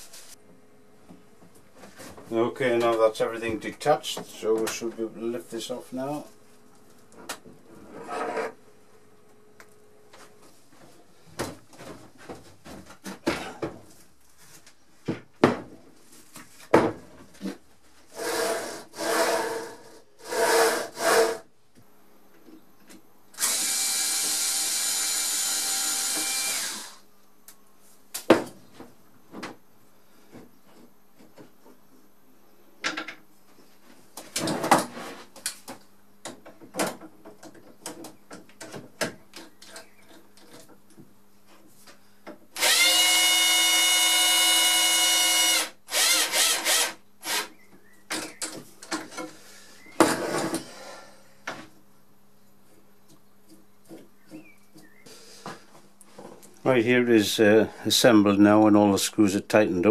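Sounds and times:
cordless screwdriver motor: 0:23.4 - 0:27.0, 0:42.6 - 0:47.4.

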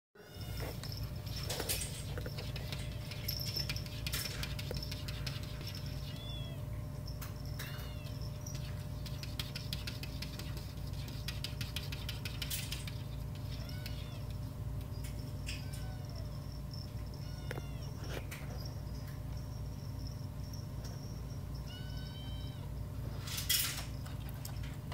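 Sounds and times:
kitten squeaks: 0:00.2 - 0:06.7, 0:07.5 - 0:09.9, 0:11.7 - 0:14.4, 0:15.3 - 0:16.5, 0:17.2 - 0:18.2, 0:21.6 - 0:22.7
steady low hum: 0:00.2 - 0:24.9
claws tapping on glass: 0:00.8 - 0:06.1, 0:07.1 - 0:15.9.

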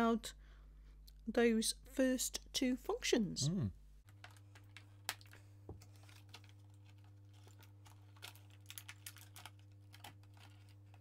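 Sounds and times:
plastic crinkling: 0:04.1 - 0:11.0.

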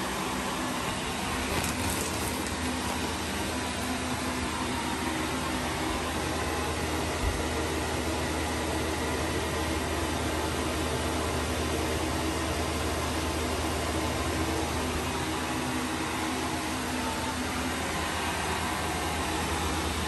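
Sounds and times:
blower fans rushing air: 0:00.0 - 0:20.0.

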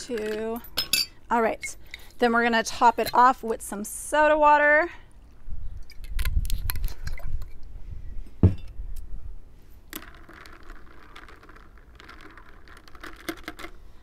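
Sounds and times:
bottle knocking on table: 0:08.4 - 0:08.7.

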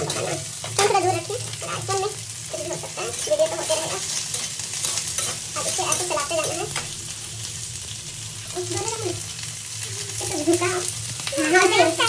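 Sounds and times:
vegetables sizzling in hot oil: 0:00.0 - 0:12.0
metal ladle scraping pan: 0:01.6 - 0:06.8.

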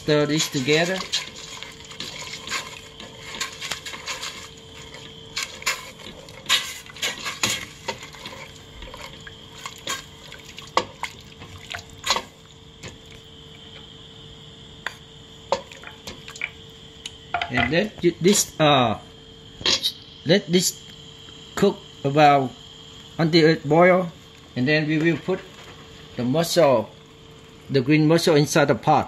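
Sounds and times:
water sloshing in a saucepan: 0:00.0 - 0:18.5.

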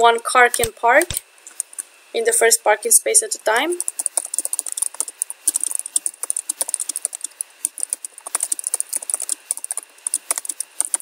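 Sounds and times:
keyboard keystroke clicks: 0:03.8 - 0:11.0.

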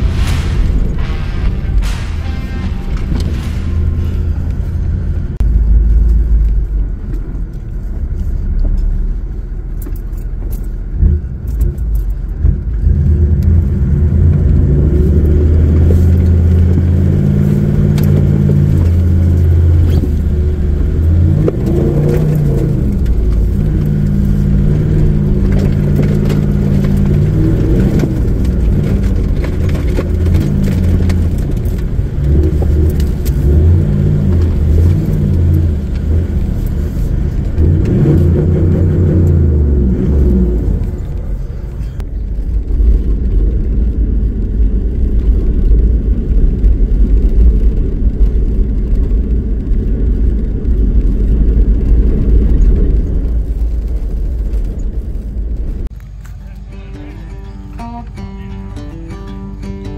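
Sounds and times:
engine revving in mud: 0:12.4 - 0:42.0.

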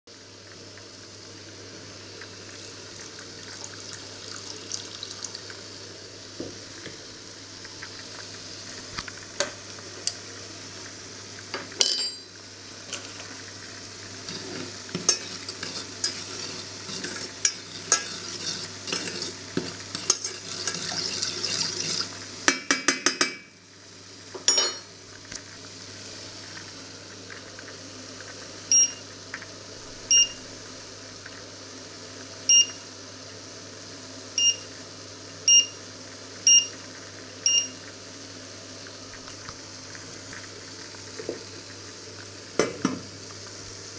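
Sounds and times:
liquid sizzling and bubbling: 0:00.1 - 0:43.9
spoon stirring and clinking in saucepan: 0:14.3 - 0:22.1.

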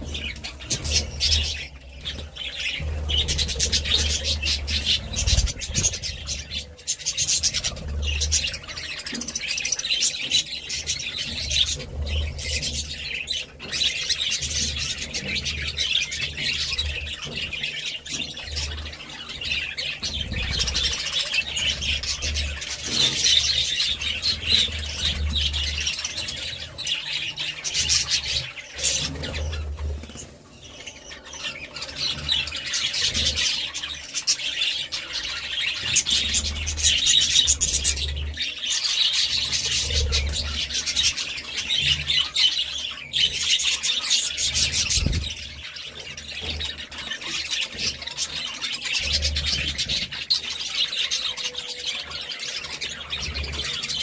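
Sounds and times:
wings fluttering: 0:00.0 - 0:09.8, 0:13.7 - 0:34.0
budgerigars chattering: 0:00.0 - 0:54.0.

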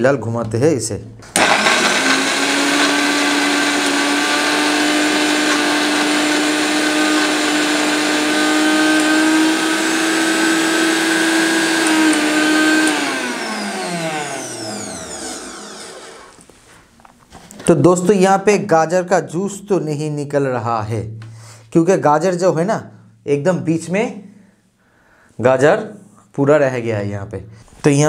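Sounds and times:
mixer grinder motor running: 0:01.3 - 0:16.5.

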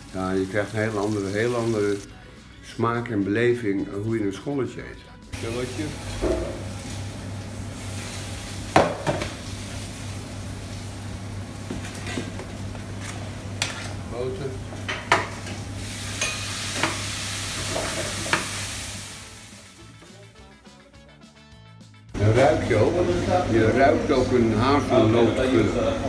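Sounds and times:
spinach sizzling in a frying pan: 0:00.0 - 0:02.1, 0:05.4 - 0:14.1, 0:15.2 - 0:19.8.

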